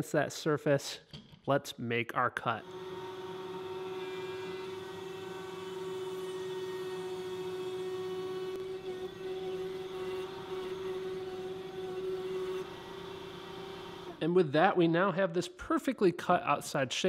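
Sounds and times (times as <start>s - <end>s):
router whining: 2.6s - 14.3s.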